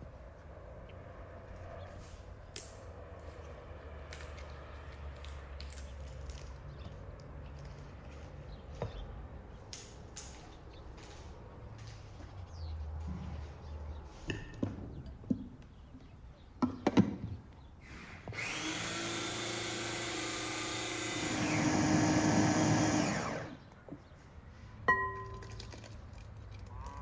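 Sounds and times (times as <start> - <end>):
food chopper motor running: 18.3 - 23.6.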